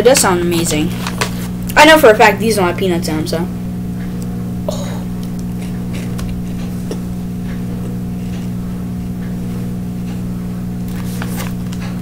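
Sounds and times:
low electrical hum: 0.0s - 12.0s
snack being chewed: 5.2s - 8.6s.

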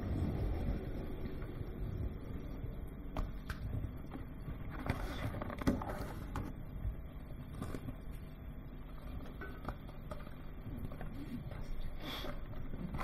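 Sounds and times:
low hall rumble: 0.0s - 9.2s.

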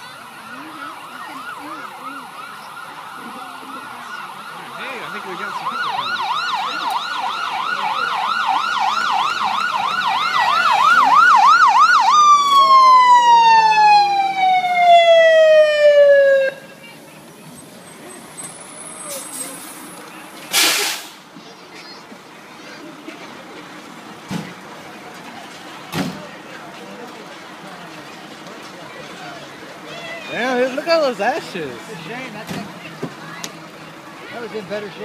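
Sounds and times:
fire engine siren yelping: 0.0s - 17.0s
siren long falling tone: 0.2s - 16.8s.

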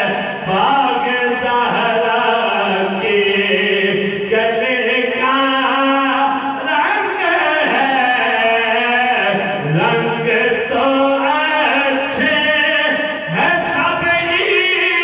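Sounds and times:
men singing over pa: 0.0s - 15.0s.

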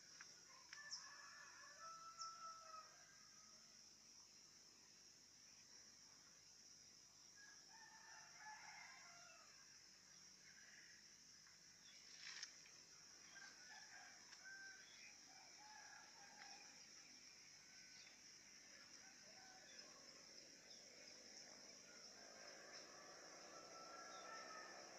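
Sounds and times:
distant rooster crowing: 0.5s - 3.4s, 7.4s - 9.6s, 13.3s - 16.7s, 21.7s - 24.9s.

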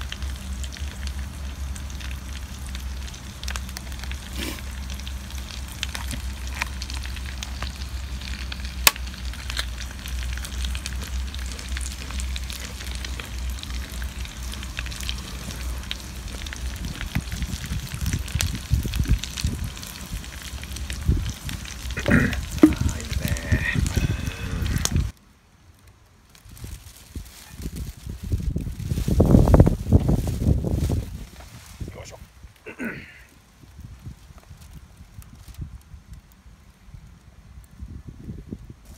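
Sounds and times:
meat sizzling in a frying pan: 0.0s - 25.1s
low rumble: 0.0s - 25.2s.

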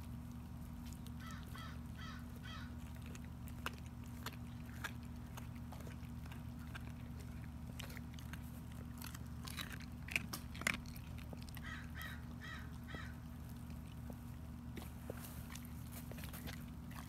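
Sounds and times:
dog crunching bone: 0.0s - 17.0s
bird calling: 1.2s - 2.8s, 11.6s - 13.2s.

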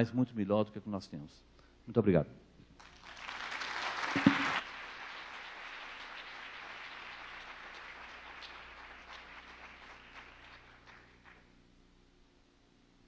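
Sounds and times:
audience applause: 2.8s - 11.5s.

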